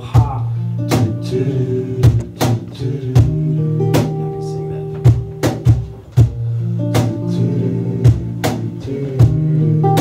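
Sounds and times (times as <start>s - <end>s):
acoustic guitar: 0.0s - 10.0s
electric bass low notes: 0.0s - 10.0s.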